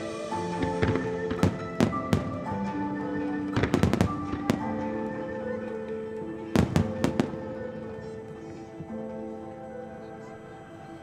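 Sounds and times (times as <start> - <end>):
music with long held notes: 0.0 - 11.0
fireworks bursting with sharp bangs: 0.2 - 8.2.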